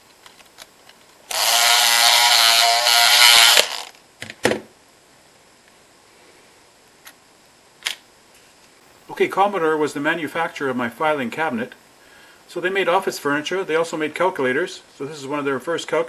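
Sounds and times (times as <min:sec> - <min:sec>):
electric lock pick buzzing: 0:01.3 - 0:04.0.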